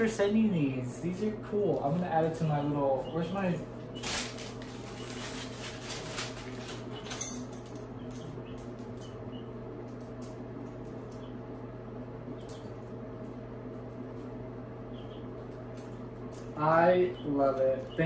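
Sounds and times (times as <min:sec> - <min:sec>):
steady low hum: 0:00.0 - 0:18.0
packing paper rustling and crinkling: 0:04.0 - 0:07.0.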